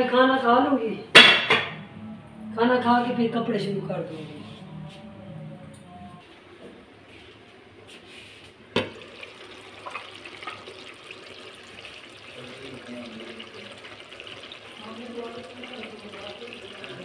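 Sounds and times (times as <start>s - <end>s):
food sizzling and bubbling: 8.8s - 17.0s.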